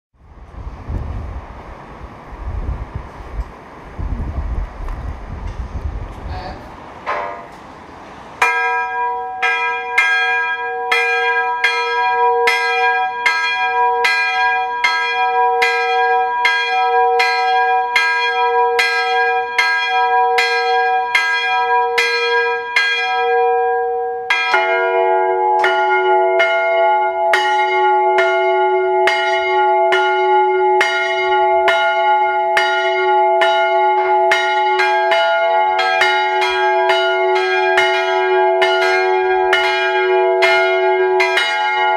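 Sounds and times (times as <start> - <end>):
higher-pitched church bell ringing: 8.4 - 41.9
lower-pitched church bell ringing: 8.4 - 41.9.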